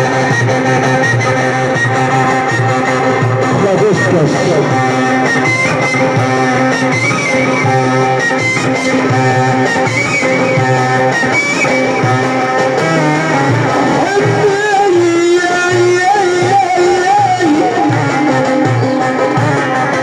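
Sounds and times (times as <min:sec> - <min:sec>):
steady low beat: 0:03.0 - 0:06.7.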